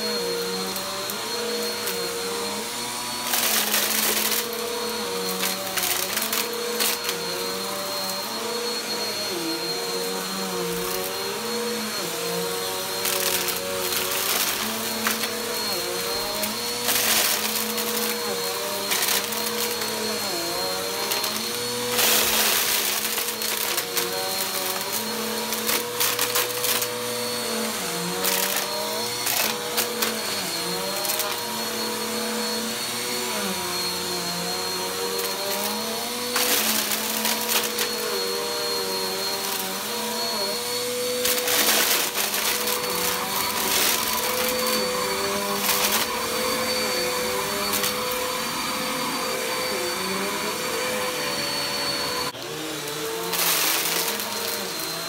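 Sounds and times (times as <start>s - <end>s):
vacuum cleaner running on carpet: 0.0s - 55.0s.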